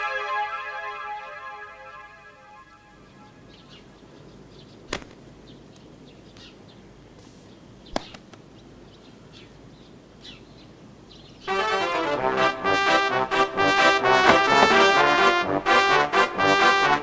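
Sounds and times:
small bird chirps: 0:03.5 - 0:06.8, 0:07.4 - 0:11.5
sharp slaps: 0:04.9 - 0:05.2, 0:07.9 - 0:08.4.

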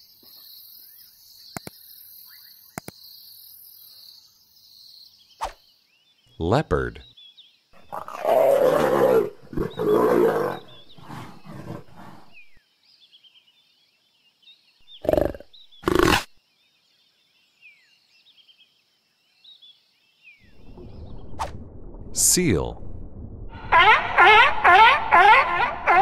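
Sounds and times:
leopard growling calls: 0:07.8 - 0:12.6, 0:14.9 - 0:16.3.

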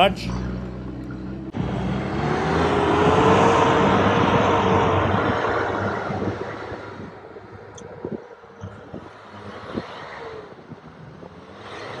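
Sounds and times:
low steady engine hum: 0:00.0 - 0:12.0
vehicle engine and tyre noise: 0:00.0 - 0:12.0.

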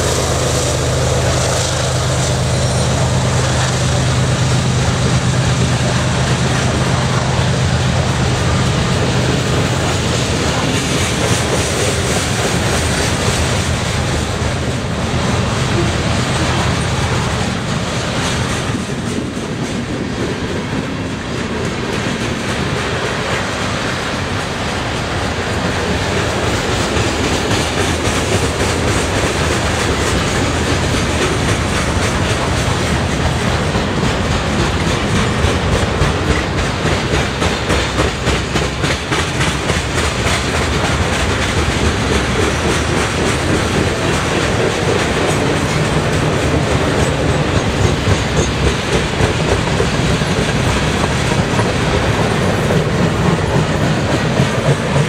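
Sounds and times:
freight cars rolling rattle: 0:00.0 - 0:55.0
train wheels clacking over rail joints: 0:00.0 - 0:55.0.

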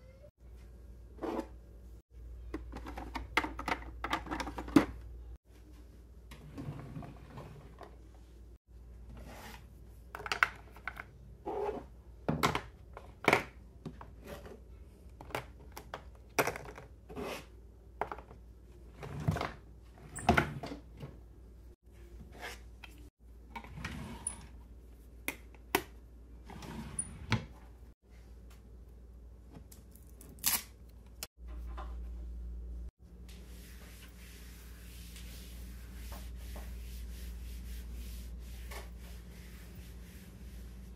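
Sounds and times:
makeup cases clacking and knocking: 0:02.5 - 0:05.0.

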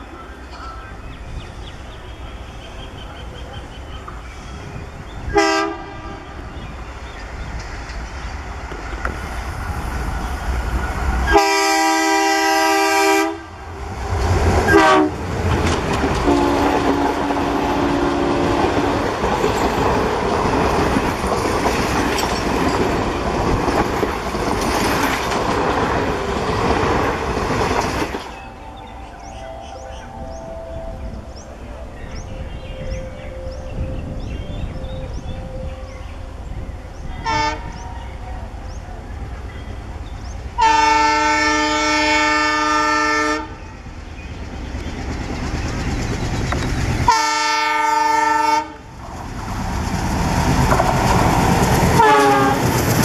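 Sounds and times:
diesel locomotive engine: 0:00.0 - 0:53.0
train horn blasts: 0:05.3 - 0:06.6, 0:11.3 - 0:13.7, 0:14.6 - 0:15.3, 0:16.2 - 0:19.3, 0:28.8 - 0:38.2, 0:40.6 - 0:43.7, 0:47.1 - 0:48.9, 0:52.0 - 0:52.8
wheels clattering on rails: 0:14.1 - 0:28.6, 0:44.2 - 0:47.2, 0:49.0 - 0:53.0.

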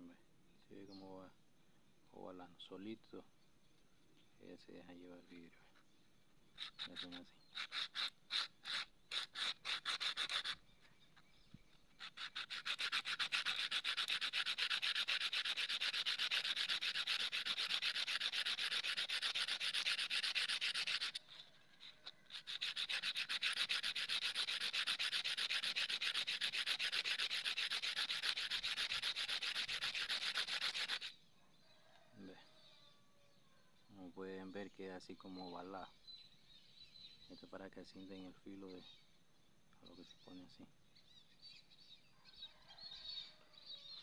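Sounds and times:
glass rasping on sandpaper: 0:06.6 - 0:10.6, 0:11.9 - 0:31.1.

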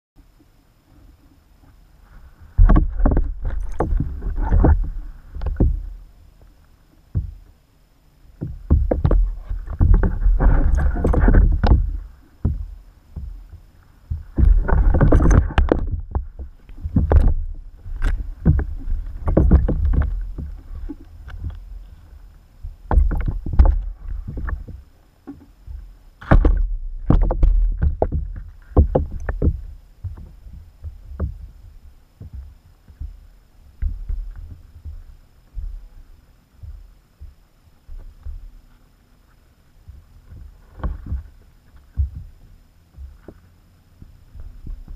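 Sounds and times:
water sloshing underwater: 0:00.2 - 0:44.9
knocks against bucket: 0:26.2 - 0:30.2.

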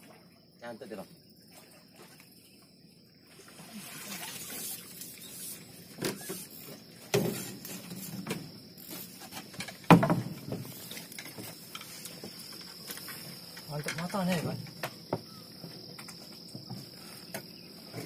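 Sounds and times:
water splashing and dripping: 0:03.3 - 0:09.0.

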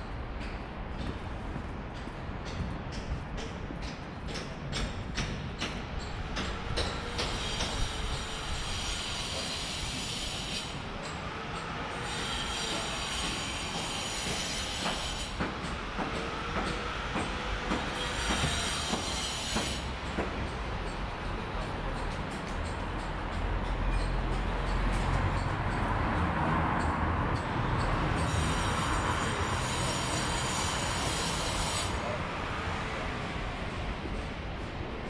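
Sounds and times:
street noise: 0:00.0 - 0:35.0
high-pitched metallic squealing whine: 0:06.8 - 0:15.4, 0:17.5 - 0:20.0, 0:27.6 - 0:32.8.

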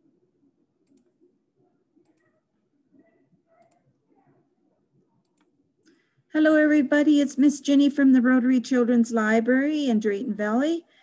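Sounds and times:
faint clicks: 0:00.8 - 0:01.2.

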